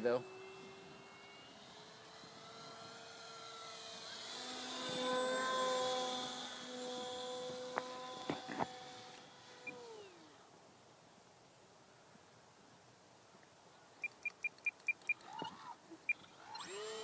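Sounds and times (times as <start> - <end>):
electric model plane motor whining: 0.0 - 10.5, 14.2 - 17.0
sharp clicks: 14.0 - 15.5.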